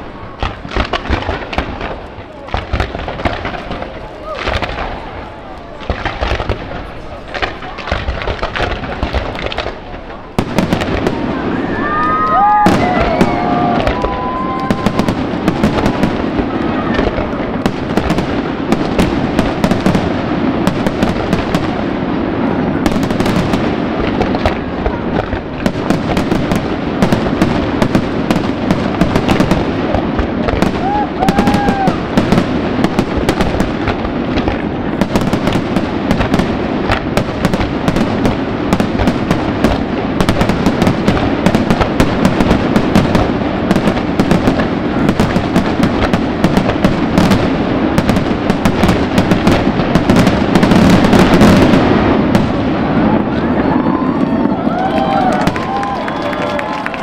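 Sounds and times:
fireworks crackling pops: 0.0s - 57.0s.

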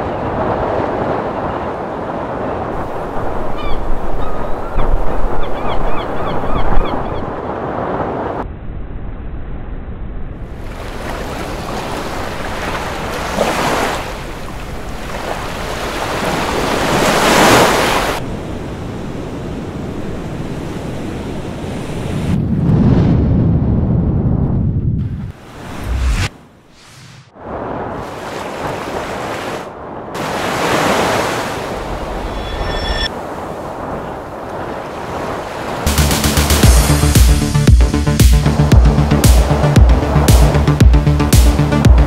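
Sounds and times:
waves breaking: 0.0s - 8.4s, 10.5s - 22.4s, 25.3s - 37.4s
wind gusting on microphone: 0.0s - 9.1s, 10.2s - 35.9s
faint high calls: 32.0s - 33.1s.

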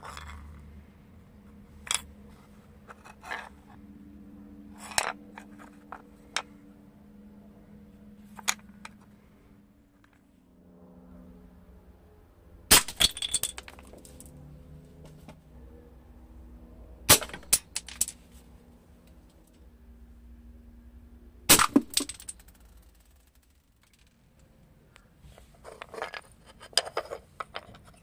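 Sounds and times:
rattle of small clicks: 21.9s - 24.5s.

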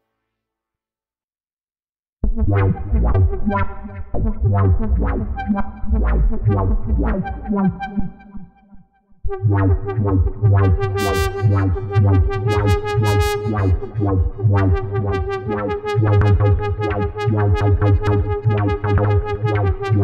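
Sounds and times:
deep synth bass: 2.2s - 8.3s, 9.3s - 20.0s
synthesizer short pitched notes: 9.4s - 16.5s.

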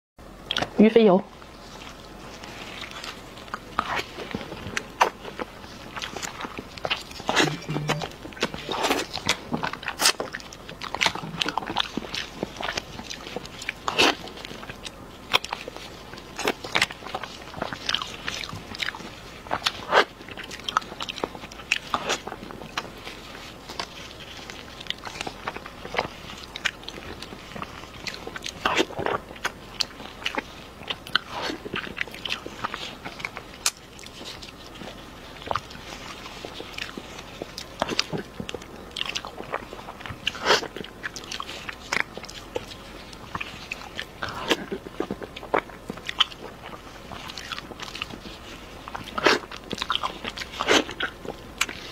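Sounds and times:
chewing and wet smacking: 0.4s - 51.9s.

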